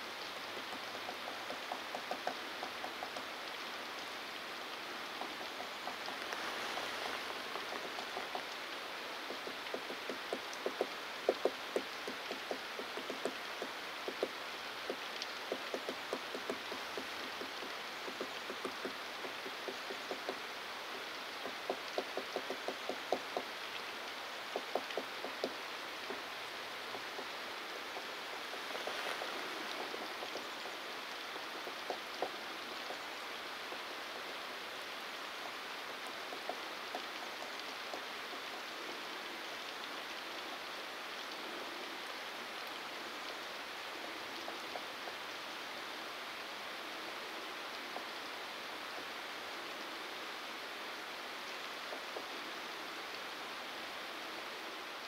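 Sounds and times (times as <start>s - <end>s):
steady background hiss: 0.0s - 55.0s
woodpecker tapping on trunk: 0.6s - 3.6s, 5.1s - 20.4s, 21.4s - 23.6s, 24.5s - 30.8s, 31.6s - 33.0s, 36.1s - 38.5s.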